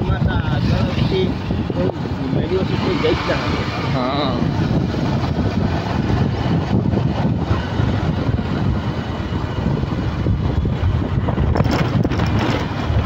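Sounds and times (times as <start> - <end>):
motorcycle running: 0.0 - 13.0
wind rushing on microphone: 0.0 - 13.0.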